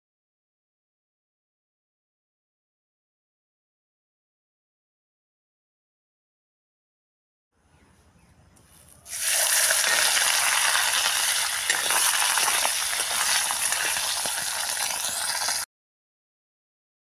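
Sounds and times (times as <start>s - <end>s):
fish sizzling in hot oil: 9.1s - 15.7s.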